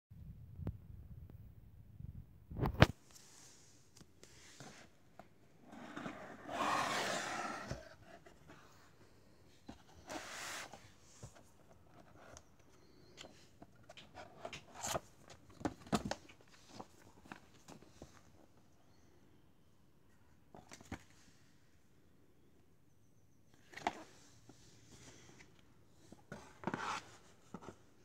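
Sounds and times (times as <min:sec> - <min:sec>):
cardboard sliding and scraping: 0:05.6 - 0:08.9, 0:09.7 - 0:11.5, 0:26.3 - 0:27.8.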